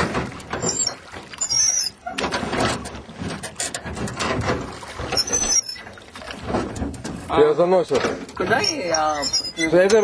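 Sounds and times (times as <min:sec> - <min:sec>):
oars knocking and creaking: 0:00.0 - 0:10.0
short high squeak: 0:00.6 - 0:02.2, 0:05.2 - 0:05.9, 0:08.6 - 0:09.8.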